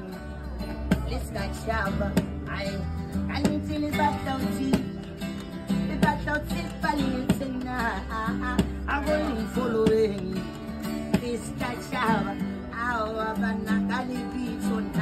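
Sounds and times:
person singing: 0.0 - 15.0
plucked acoustic guitar: 0.0 - 15.0.

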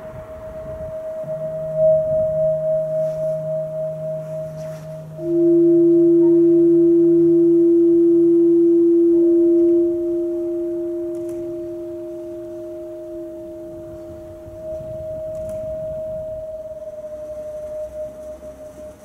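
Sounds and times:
high sustained tone: 0.0 - 19.0.

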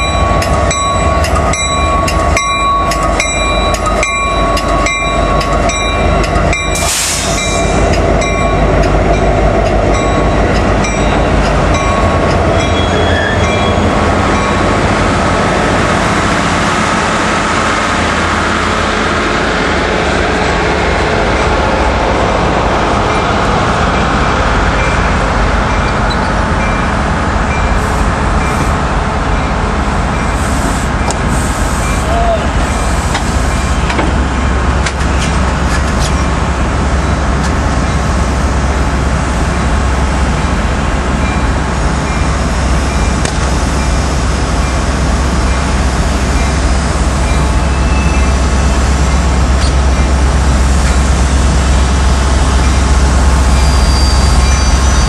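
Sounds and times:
locomotive bell ringing: 0.0 - 15.0, 23.0 - 34.6, 40.3 - 55.0
diesel locomotive passing: 0.0 - 55.0
train wheels rumbling on rail: 0.0 - 55.0
hiss of air: 6.8 - 7.6.

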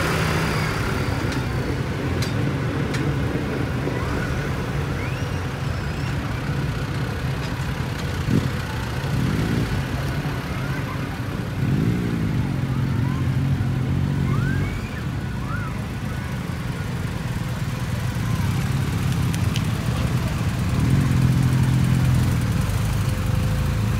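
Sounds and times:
engine revving: 0.0 - 1.5, 9.1 - 10.2, 11.5 - 14.7
vehicles driving past: 0.0 - 23.9.

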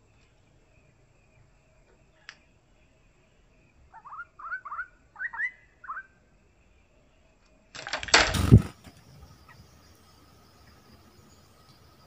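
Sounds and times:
rustling and clattering: 7.8 - 9.4.

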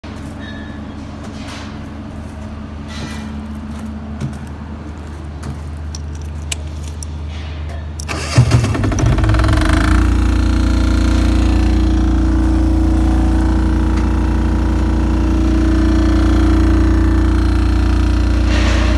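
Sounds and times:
steady low hum: 0.0 - 18.9
key jingling in ignition: 5.8 - 7.2
diesel engine cranking and starting: 8.0 - 18.9.

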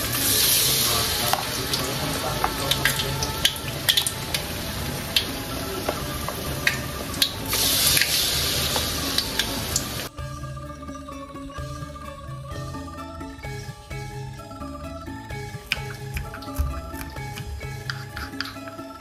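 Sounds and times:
batter deep-frying in hot oil: 0.0 - 10.1
spoon clicking against bowl: 17.8 - 18.7.

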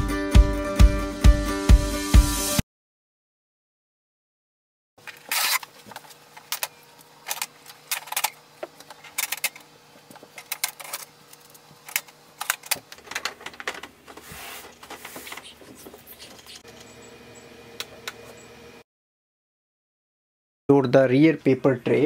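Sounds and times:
packing tape ripping: 5.1 - 6.0.

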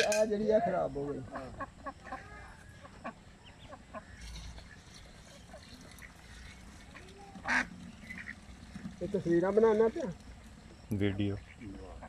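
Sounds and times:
ducklings peeping: 1.2 - 12.0.

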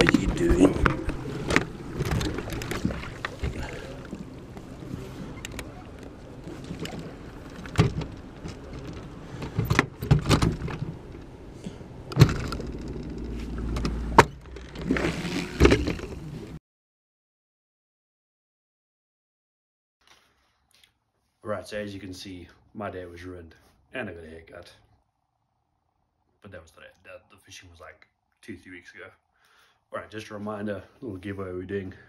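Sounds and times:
boat motor humming: 0.0 - 16.6.

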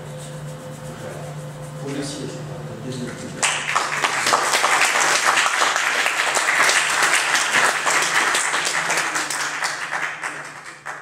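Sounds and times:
audience applauding: 3.4 - 11.0.

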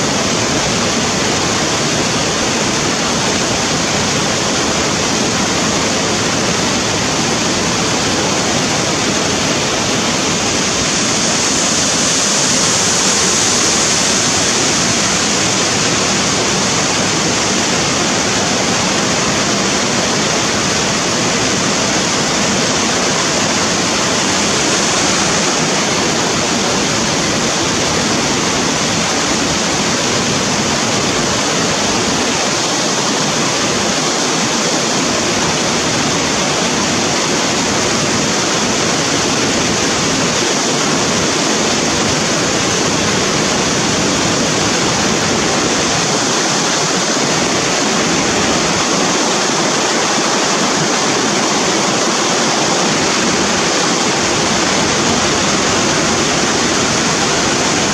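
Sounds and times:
stream rushing over rocks: 0.0 - 57.9.

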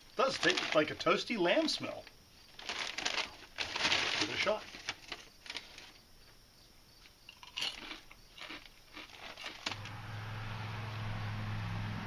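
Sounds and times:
person chewing crunchy chip: 7.3 - 9.8
steady low hum: 9.7 - 12.0.

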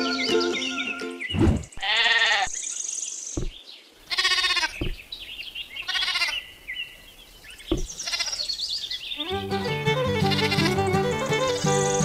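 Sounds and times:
goat bleating: 1.8 - 2.6, 4.1 - 4.9, 5.8 - 6.4, 7.8 - 8.5, 9.2 - 12.0.

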